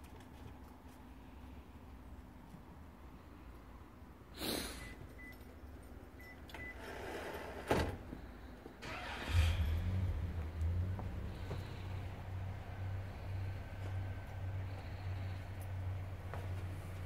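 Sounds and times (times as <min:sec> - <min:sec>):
low engine hum: 0:08.2 - 0:17.0.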